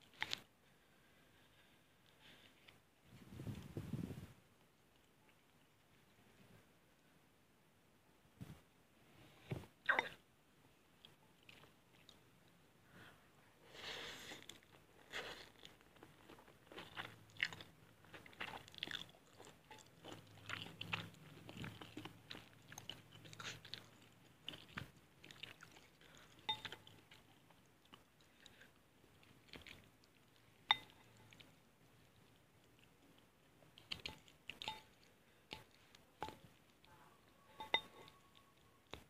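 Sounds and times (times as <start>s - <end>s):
wet chewing: 14.4s - 39.0s.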